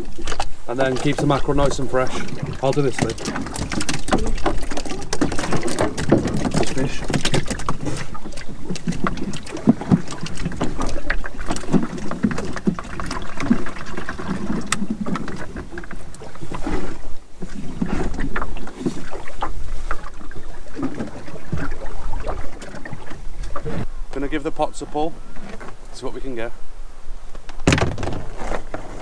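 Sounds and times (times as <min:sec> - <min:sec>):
water sloshing against boat hull: 0:00.0 - 0:23.9
knocks from gear in boat: 0:02.4 - 0:13.6, 0:27.6 - 0:28.6.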